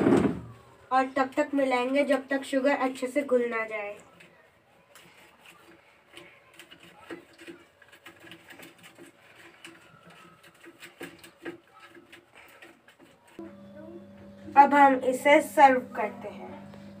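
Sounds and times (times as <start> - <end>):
wooden churner clicking and tapping: 4.1 - 13.4.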